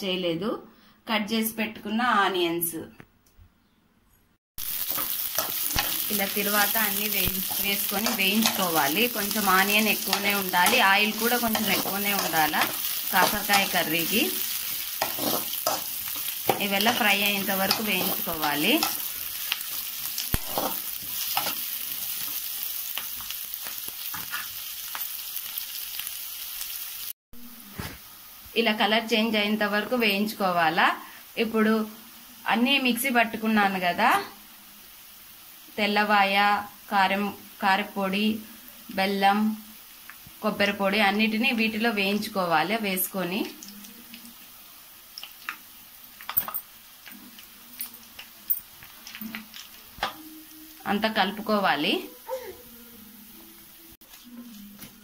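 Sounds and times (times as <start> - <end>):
onions sizzling in hot oil: 4.6 - 52.5
steel spoon scraping a pan: 4.8 - 22.4.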